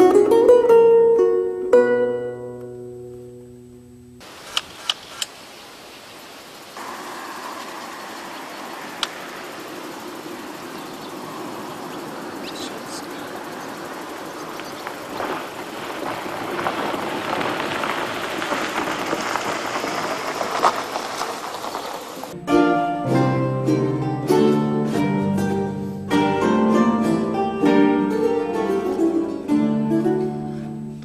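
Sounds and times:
plucked-string music: 0.0 - 4.2, 22.4 - 31.0
steady rushing noise: 4.2 - 22.4
sharp click: 4.4 - 5.4.

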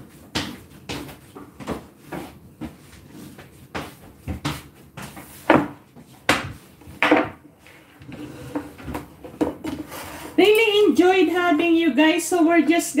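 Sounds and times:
kitchen items knocking on table: 5.5 - 7.4.

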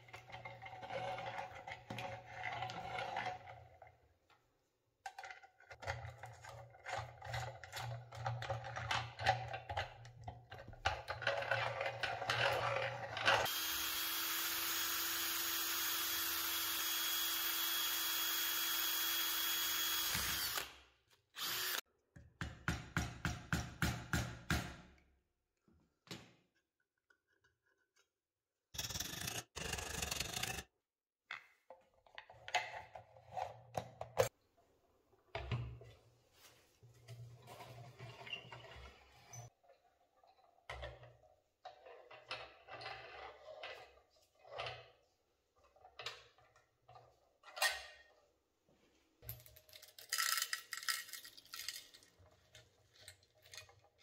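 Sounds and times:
power tool running: 13.5 - 20.8, 21.4 - 21.8.

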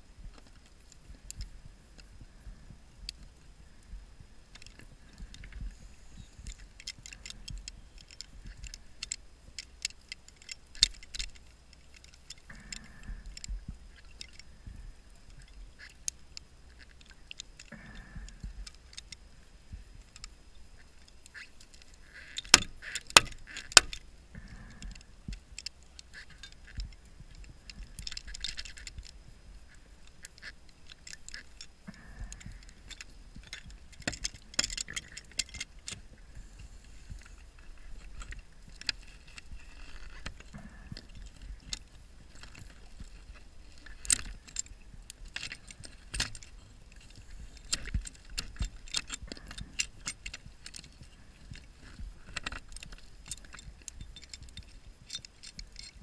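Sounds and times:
metallic clicks and knocks: 20.0 - 36.2, 37.0 - 56.0.

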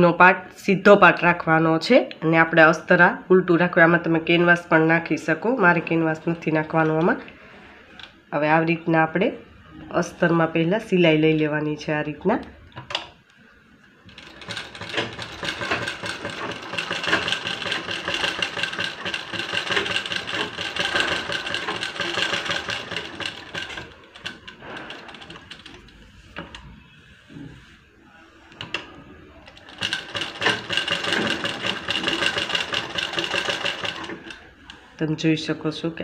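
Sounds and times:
sewing machine stitching: 14.0 - 26.7, 28.6 - 34.8
sewing machine clicks: 14.1 - 26.6, 28.6 - 34.8.

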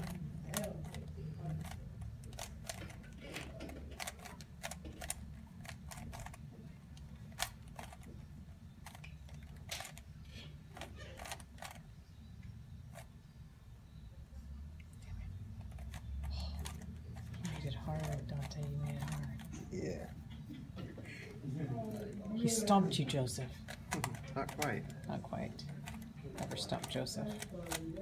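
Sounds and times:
puzzle cube plastic clicks: 0.0 - 11.9, 15.6 - 19.6, 23.5 - 28.0.

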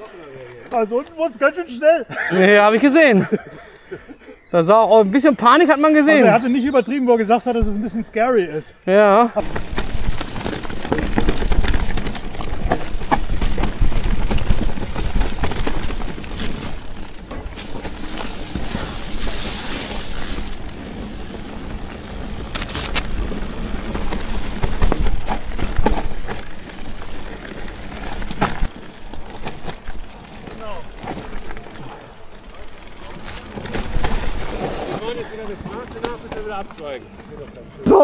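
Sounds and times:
bike rattles and knocks: 9.4 - 38.0.

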